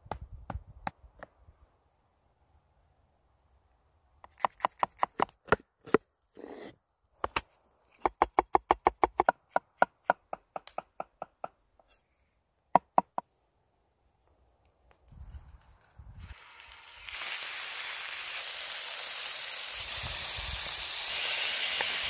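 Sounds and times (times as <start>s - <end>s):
cleaver chopping on wooden board: 4.3s - 6.0s, 8.0s - 11.6s.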